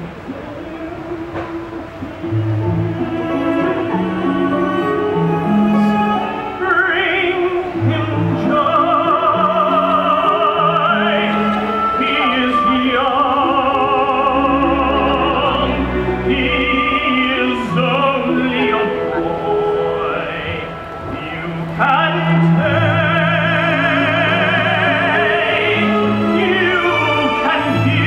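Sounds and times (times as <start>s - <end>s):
orchestral accompaniment: 0.0s - 28.0s
man singing ballad: 6.3s - 28.0s.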